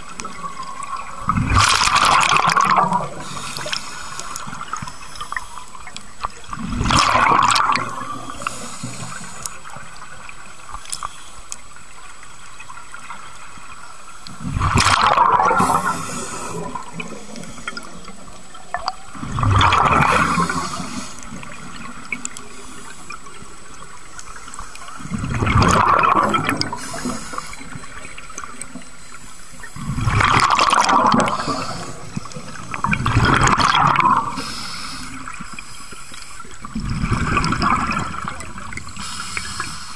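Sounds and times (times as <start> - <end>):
steady water hiss: 0.0 - 39.9
diver exhaling bubbles: 14.4 - 17.9, 18.7 - 21.0, 29.8 - 32.1.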